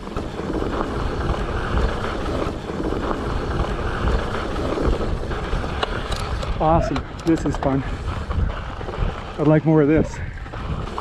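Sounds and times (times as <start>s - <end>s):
bike tyres rumbling on dirt: 0.0s - 11.0s
wind buffeting microphone: 0.0s - 11.0s.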